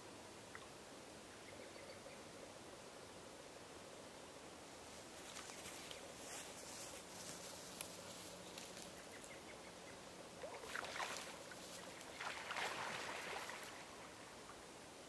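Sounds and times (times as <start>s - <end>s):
faint outdoor background: 0.0s - 15.0s
geese splashing in water: 10.4s - 14.2s.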